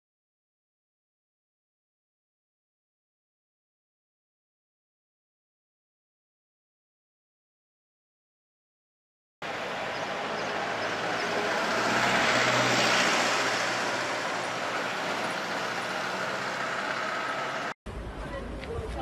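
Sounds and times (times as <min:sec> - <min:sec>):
vehicle passing: 0:09.4 - 0:17.8
steady traffic hum: 0:09.4 - 0:19.0.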